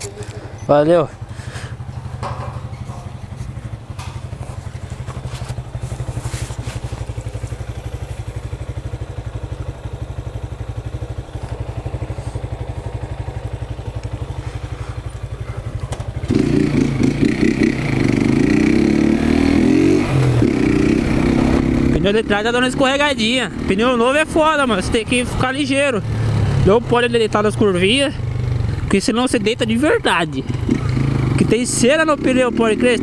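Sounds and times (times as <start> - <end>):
motorcycle engine: 0.0 - 33.0.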